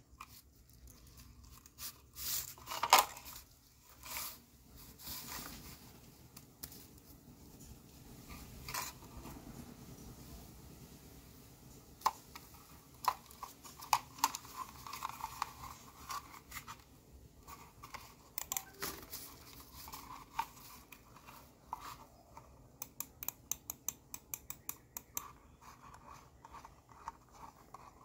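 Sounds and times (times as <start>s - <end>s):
computer mouse clicking: 22.4s - 28.0s.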